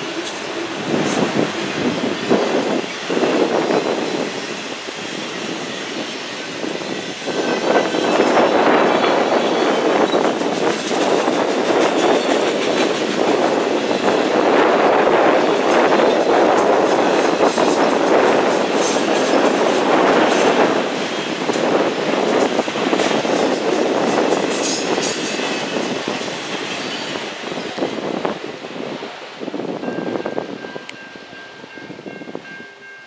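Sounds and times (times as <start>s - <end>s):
steel wheels rumbling on rail: 0.0s - 33.0s
train wheel clicks: 7.4s - 14.3s.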